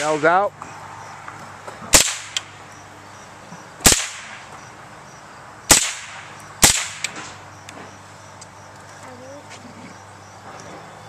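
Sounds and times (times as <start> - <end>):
rifle shots echoing: 1.9 - 2.5, 3.8 - 4.5, 5.7 - 7.4.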